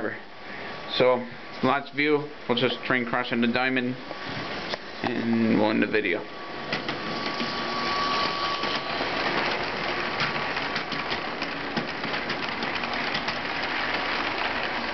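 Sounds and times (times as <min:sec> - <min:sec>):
plastic wheels clattering on track: 0:06.6 - 0:14.9
small electric motor whirring: 0:06.8 - 0:10.6.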